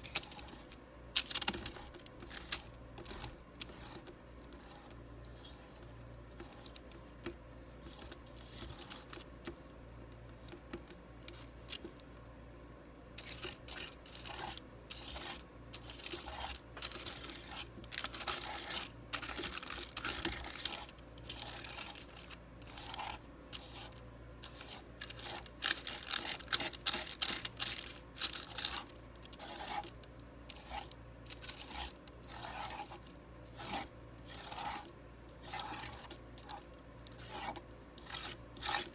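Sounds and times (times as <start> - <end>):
palette knife scraping paint: 1.5 - 12.0, 13.2 - 38.9.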